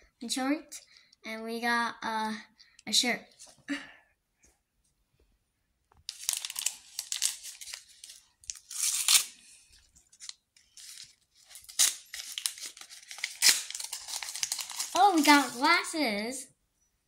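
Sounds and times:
wrapper tearing and crinkling: 0:06.1 - 0:15.9.

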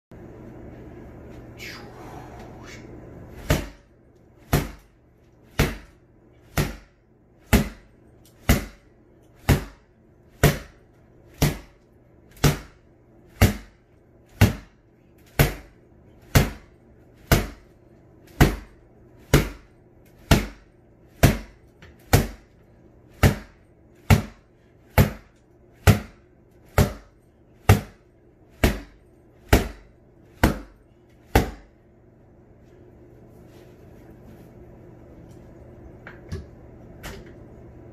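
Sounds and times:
faint low hum: 0:00.1 - 0:37.9
sword hitting punching bag: 0:09.4 - 0:09.8, 0:11.4 - 0:11.8, 0:12.4 - 0:12.8.

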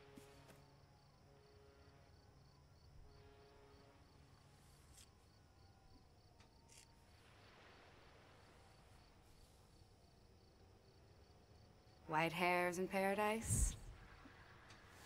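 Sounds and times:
cricket chirping: 0:00.0 - 0:12.1.

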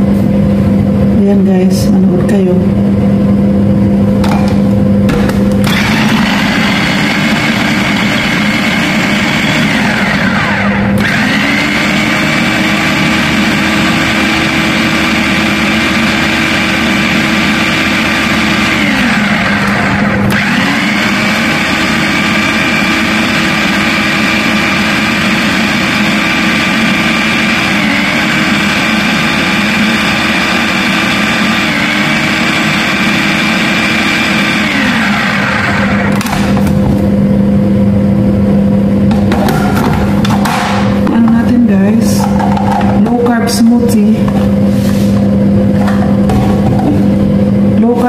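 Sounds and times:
food processor motor blending: 0:05.3 - 0:36.8.

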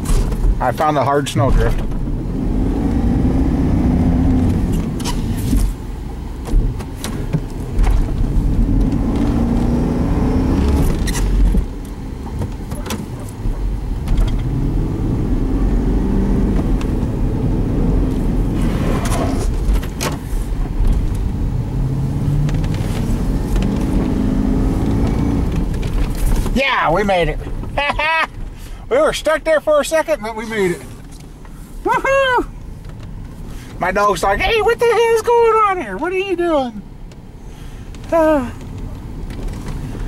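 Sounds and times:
car engine revving: 0:00.0 - 0:27.8.

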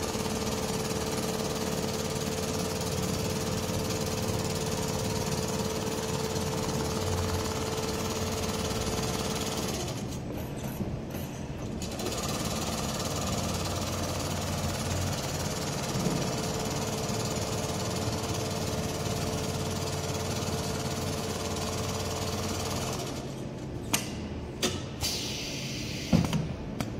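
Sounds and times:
sewing machine needle hammering: 0:00.0 - 0:10.2, 0:11.8 - 0:23.2.

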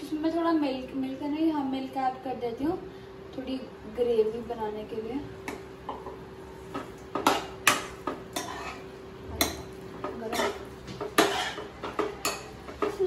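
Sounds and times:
metal spoon scraping a pan: 0:07.2 - 0:13.0.

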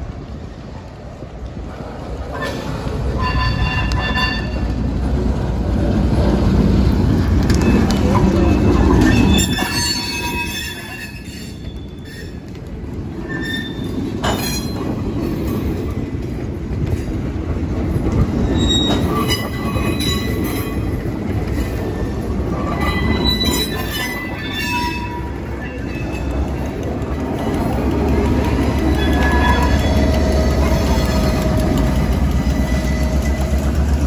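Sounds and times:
freight train rumbling: 0:00.0 - 0:34.0
wheels squealing: 0:02.2 - 0:04.9, 0:07.2 - 0:12.4, 0:13.1 - 0:15.9, 0:18.2 - 0:34.0.

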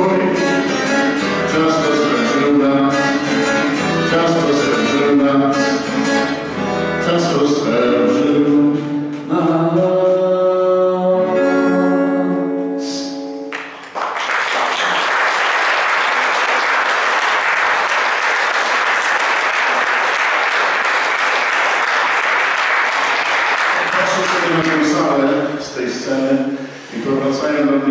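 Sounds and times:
man singing: 0:00.0 - 0:13.3
acoustic guitar: 0:00.0 - 0:14.2, 0:16.2 - 0:27.9
audience applause: 0:13.6 - 0:25.0.

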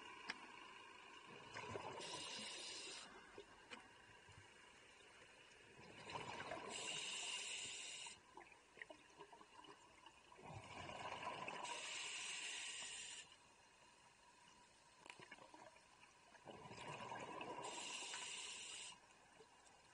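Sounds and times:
exhaled bubbles gurgling: 0:01.3 - 0:03.0, 0:05.7 - 0:07.6, 0:08.4 - 0:12.4, 0:16.4 - 0:18.4
regulator valve hiss: 0:02.0 - 0:03.2, 0:06.7 - 0:08.2, 0:11.6 - 0:13.4, 0:17.6 - 0:19.0.

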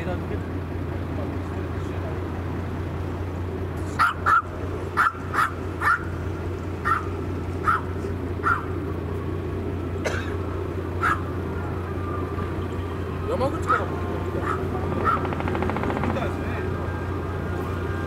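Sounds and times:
small dog yapping: 0:04.0 - 0:06.2, 0:06.8 - 0:08.8, 0:11.0 - 0:11.3, 0:13.6 - 0:15.3.

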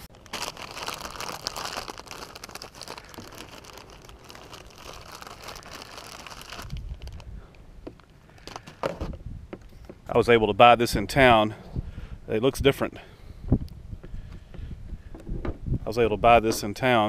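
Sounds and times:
plastic bag crinkling: 0:00.0 - 0:07.3, 0:08.0 - 0:08.8.

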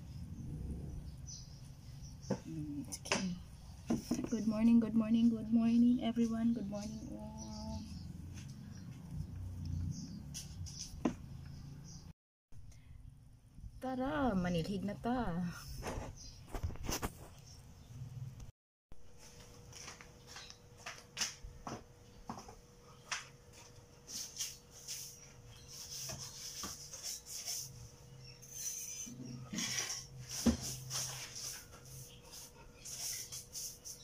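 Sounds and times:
broom sweeping: 0:23.6 - 0:28.8, 0:29.6 - 0:34.0.

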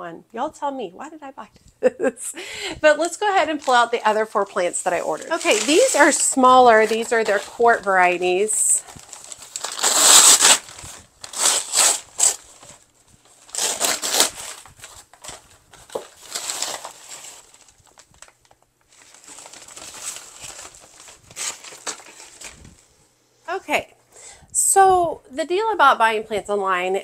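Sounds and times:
paper bags crumpling: 0:03.0 - 0:22.9.

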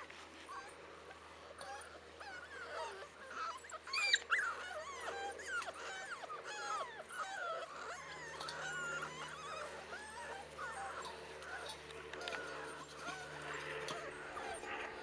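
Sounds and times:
puppies whining: 0:00.0 - 0:15.0.

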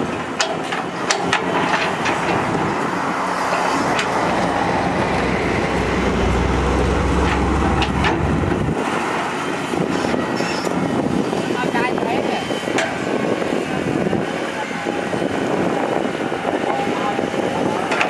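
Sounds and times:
excavator diesel engine under load: 0:00.0 - 0:11.6
deep rumble: 0:02.0 - 0:09.9.

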